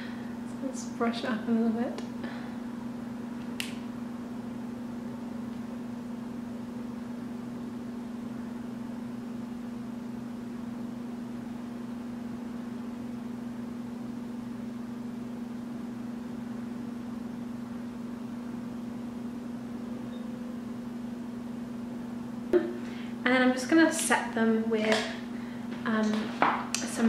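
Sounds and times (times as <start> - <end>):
electrical hum: 0.0 - 27.0.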